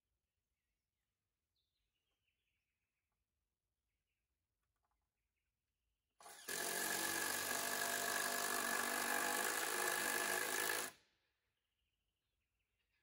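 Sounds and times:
power tool whining: 6.2s - 11.0s.

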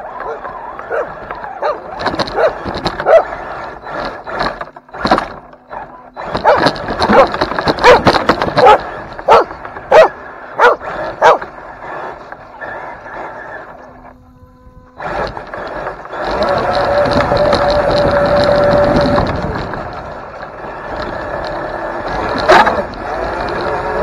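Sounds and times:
dog barking: 0.2s - 3.4s, 5.7s - 11.5s, 22.5s - 22.8s.

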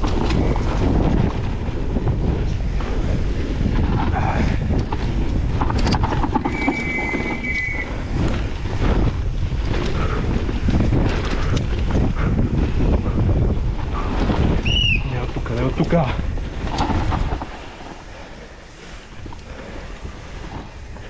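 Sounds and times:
bike clattering over rough ground: 0.0s - 21.0s
wind buffeting microphone: 0.0s - 21.0s
short high squeal: 6.5s - 8.0s.

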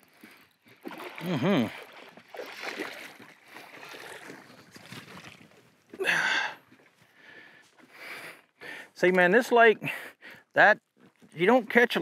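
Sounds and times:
fish splashing and thrashing in water: 0.0s - 7.0s.

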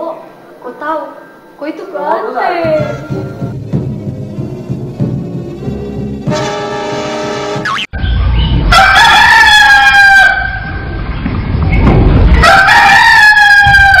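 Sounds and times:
rooster crowing: 8.0s - 11.0s, 12.3s - 14.0s.

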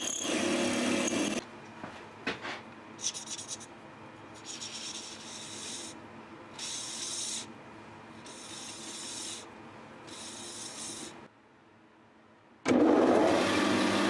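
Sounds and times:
marker scratching on metal: 3.0s - 3.7s, 4.4s - 6.0s, 6.6s - 7.5s, 8.2s - 9.5s, 10.1s - 11.2s.

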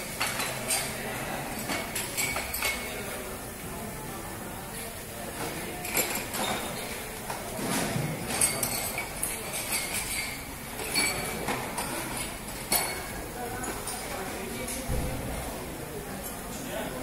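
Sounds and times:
drinking glasses clinking: 1.6s - 3.1s, 5.8s - 6.9s, 8.3s - 13.1s.

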